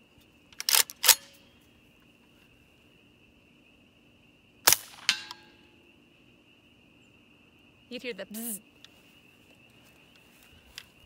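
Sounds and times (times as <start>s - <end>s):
insects droning: 0.0s - 11.0s
suppressed rifle shots: 4.7s - 5.4s.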